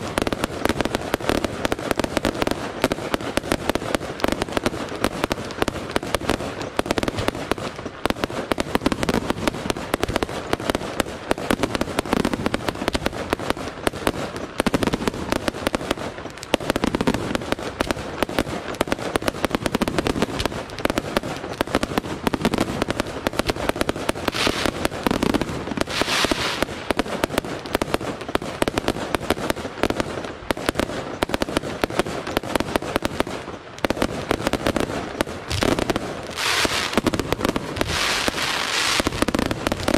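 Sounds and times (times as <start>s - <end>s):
fireworks bursting and crackling: 0.0s - 39.9s
hiss of sparks: 24.3s - 24.9s, 25.8s - 26.8s, 36.3s - 37.0s.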